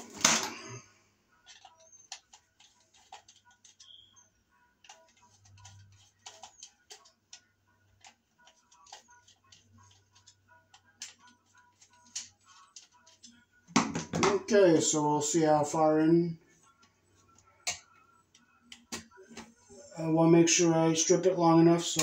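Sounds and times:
clicks and taps handling wires: 0:01.5 - 0:04.0, 0:04.8 - 0:07.4, 0:08.0 - 0:14.4, 0:16.8 - 0:19.6.

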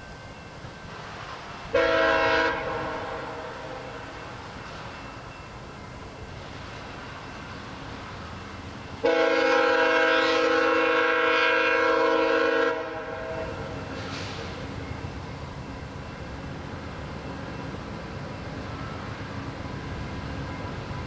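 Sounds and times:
train rumble: 0:00.0 - 0:21.0
locomotive horn blast: 0:01.7 - 0:04.3, 0:09.0 - 0:13.7.

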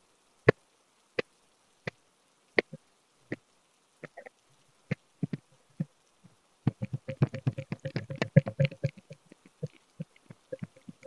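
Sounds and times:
hollow bamboo tubes knocking: 0:06.7 - 0:11.0.

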